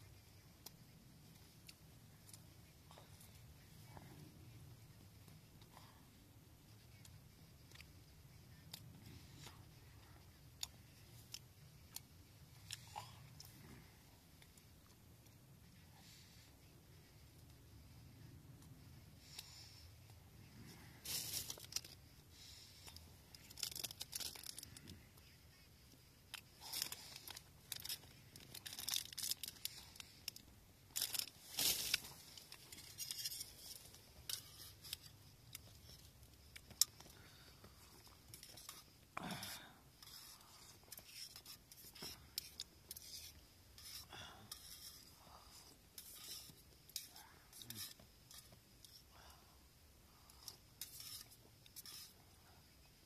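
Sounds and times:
rustling and crinkling: 18.5 - 49.1.

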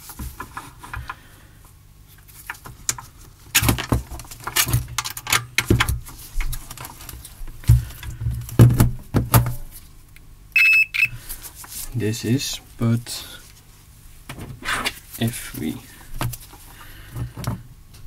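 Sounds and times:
multimeter continuity beep: 10.6 - 11.2.

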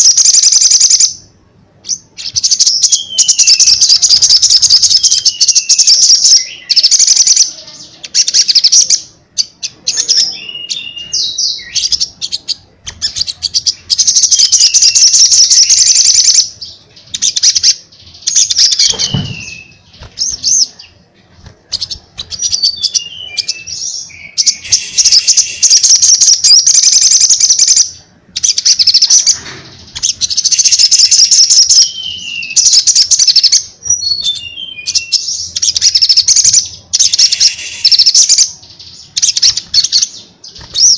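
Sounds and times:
bird singing rapid high trills: 0.0 - 40.9
falling whistled bird notes: 22.4 - 27.5, 34.0 - 38.4.

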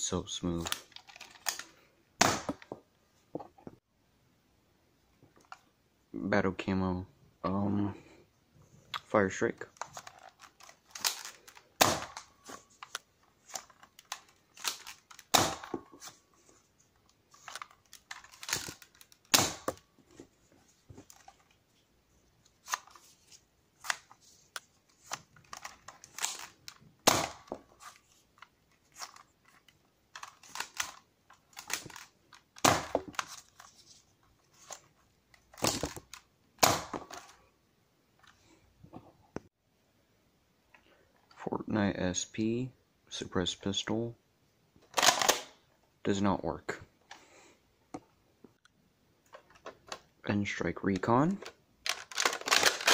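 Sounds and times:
handling clicks of loading darts: 22.6 - 33.8.

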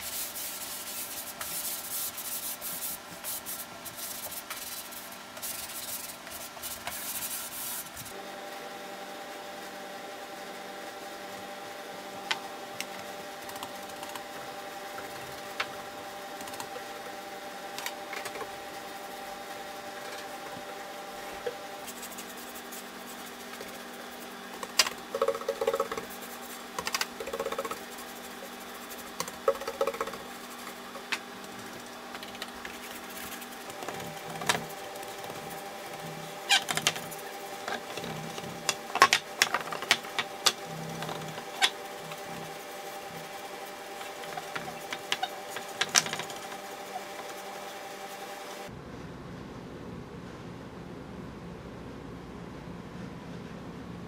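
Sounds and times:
steady hum: 0.0 - 54.0.

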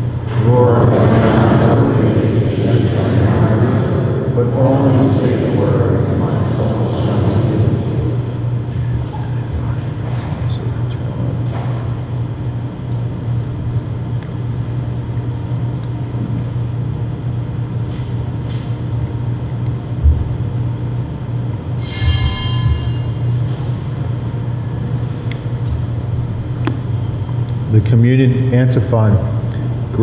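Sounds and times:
low machine hum: 0.0 - 30.0
short bright ring: 21.7 - 25.0.

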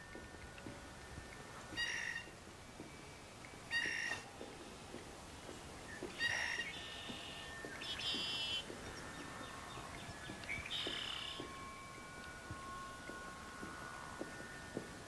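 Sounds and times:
long held tones: 0.0 - 5.4, 6.0 - 15.0
shrill bird-like calls: 1.8 - 2.3, 3.7 - 4.2, 5.9 - 14.7.

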